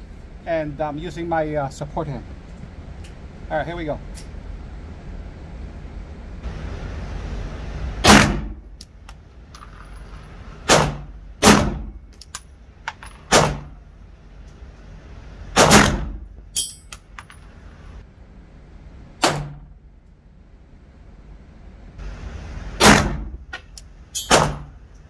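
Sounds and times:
pistol shots with echo: 10.7s - 11.9s, 15.6s - 16.2s
metallic clatter: 16.5s - 18.0s.

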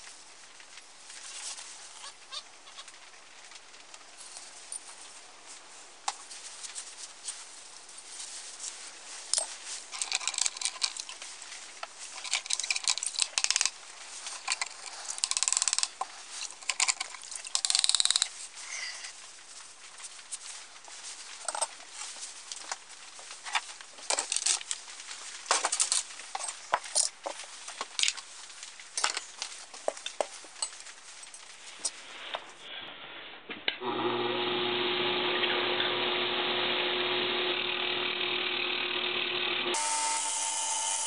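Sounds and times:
metal parts clinking: 9.3s - 11.2s, 12.1s - 18.3s.

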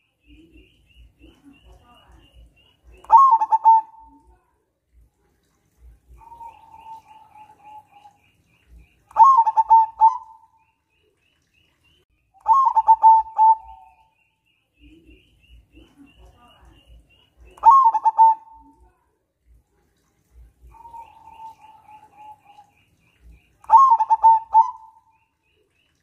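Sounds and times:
dove cooing: 3.0s - 4.3s, 6.1s - 8.2s, 9.1s - 10.5s, 12.5s - 14.0s, 17.6s - 18.8s, 20.6s - 22.7s, 23.7s - 25.2s.

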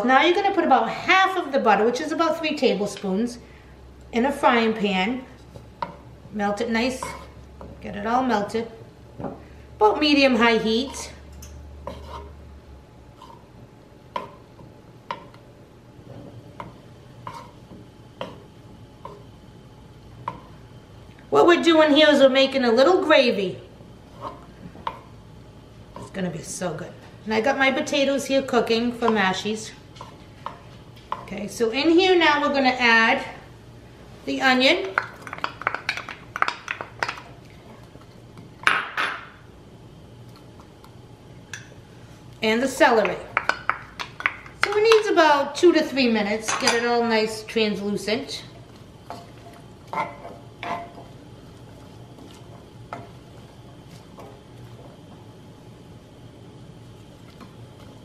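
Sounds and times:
wooden spoon scraping a pan: 6.8s - 7.4s, 11.8s - 12.4s, 13.1s - 13.5s, 17.2s - 17.7s, 24.1s - 24.7s, 49.1s - 54.7s.

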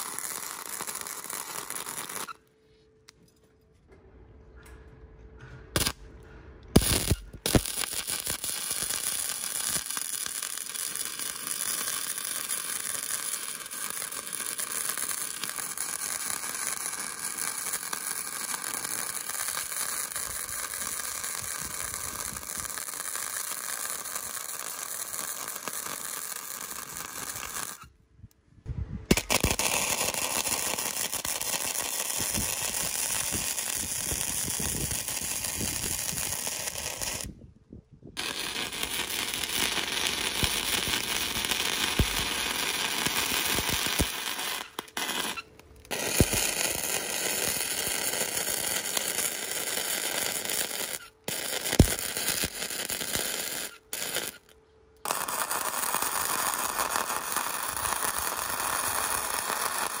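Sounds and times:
metalworking crackling and scraping: 0.8s - 8.5s.

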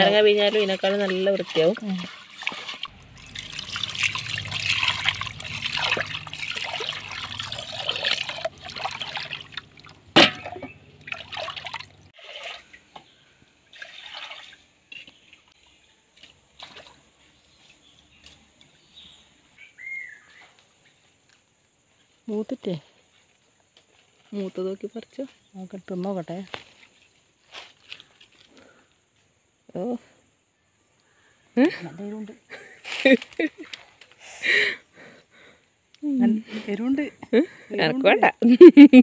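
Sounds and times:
water dripping: 0.0s - 13.0s
water splashing and sloshing: 0.0s - 17.8s.

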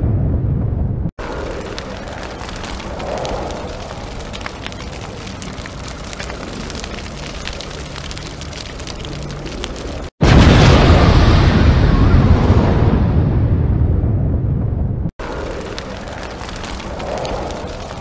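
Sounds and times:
rushing rumble: 0.0s - 18.0s
crackles and pops: 1.2s - 11.3s, 15.2s - 18.0s.

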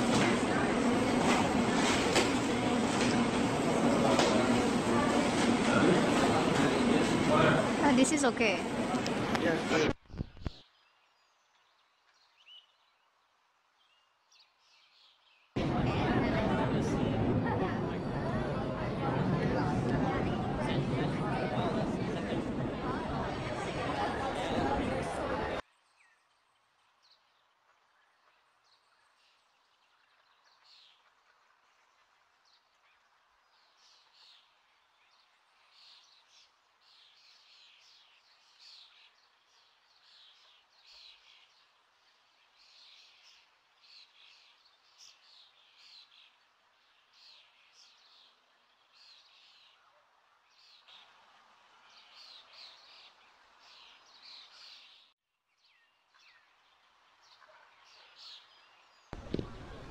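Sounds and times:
distant background hum: 0.0s - 10.0s, 15.6s - 25.6s, 59.2s - 59.9s
small birds chirping: 31.8s - 41.7s, 42.3s - 49.9s, 50.5s - 59.9s.

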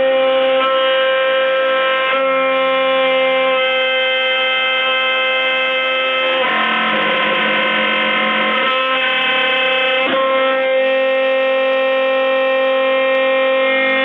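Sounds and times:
cnc router spindle whining: 0.0s - 14.0s.

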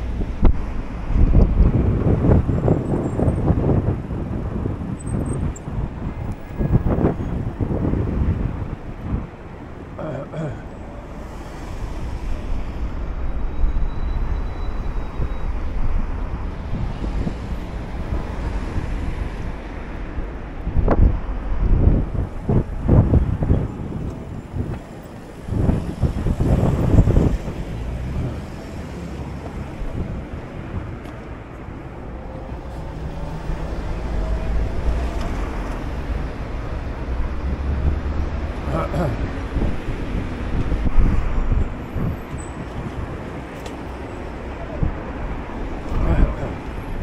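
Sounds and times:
wind buffeting microphone: 0.0s - 10.2s, 11.0s - 47.0s
street traffic rumble: 0.0s - 47.0s.

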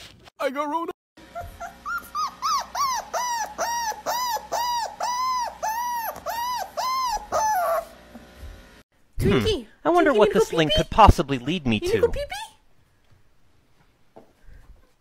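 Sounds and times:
puppy yapping: 1.3s - 8.0s.

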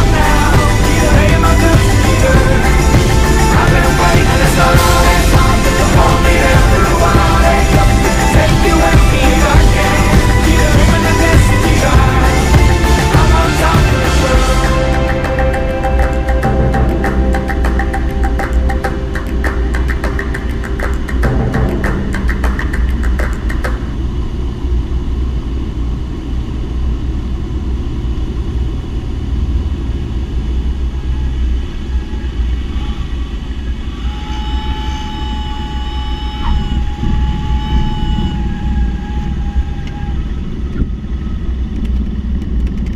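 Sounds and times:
music: 0.0s - 24.2s, 34.2s - 39.7s
steady high tone: 0.0s - 28.3s, 29.9s - 41.6s
aircraft engine and propeller drone: 0.0s - 42.9s.

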